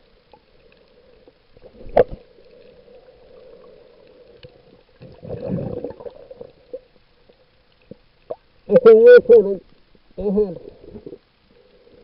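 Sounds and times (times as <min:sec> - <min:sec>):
muffled underwater sloshing: 0:00.0 - 0:08.7
faint steady hum: 0:00.0 - 0:12.0.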